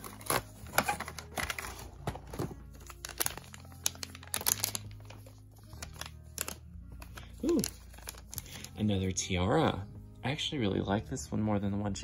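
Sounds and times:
plastic wrapper crinkling: 0.0 - 8.8.

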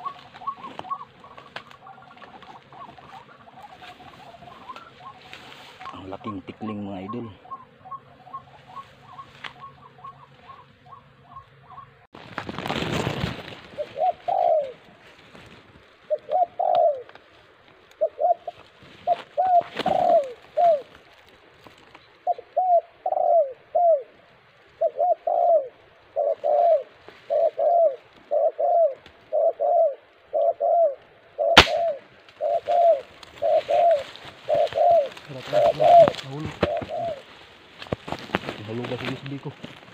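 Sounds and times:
dove cooing: 0.0 - 12.1, 13.5 - 17.3, 17.9 - 21.2, 22.0 - 39.9
burst of rustling: 12.2 - 14.2
sharp crack: 31.6 - 32.0.

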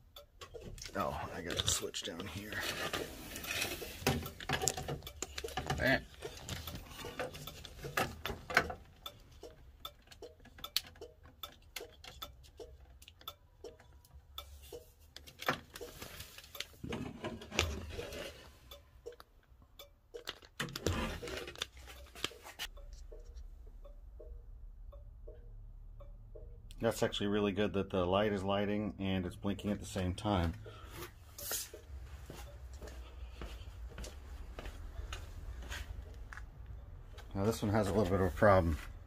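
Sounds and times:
hands handling wiring connectors: 0.4 - 9.1, 14.7 - 23.4.

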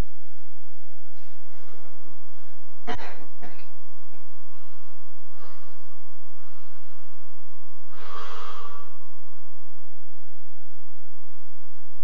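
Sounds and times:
man breathing: 4.4 - 9.1.

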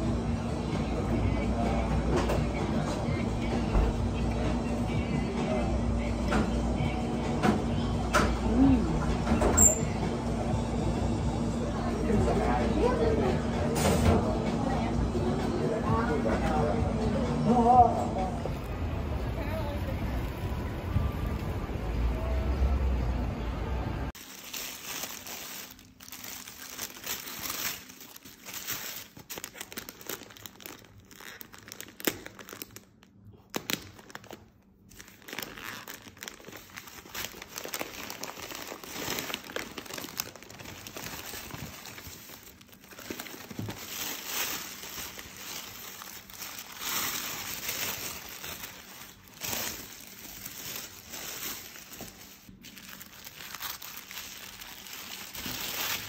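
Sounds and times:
tissue paper crinkling: 24.1 - 32.8, 33.5 - 56.0.

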